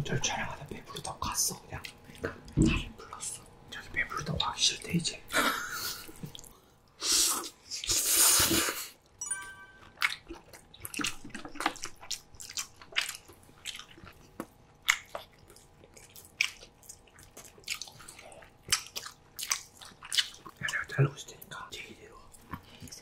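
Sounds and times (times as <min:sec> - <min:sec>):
wet chewing: 0:09.8 - 0:20.9.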